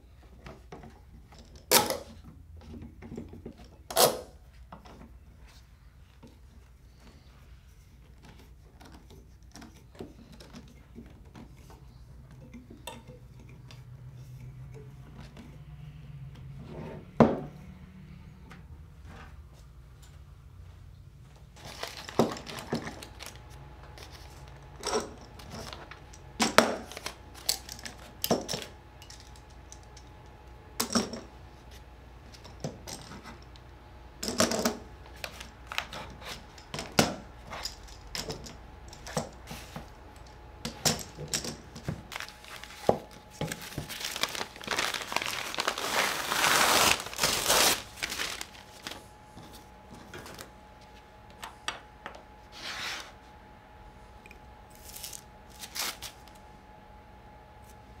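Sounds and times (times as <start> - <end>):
newsprint rustling and tearing: 43.5 - 49.0.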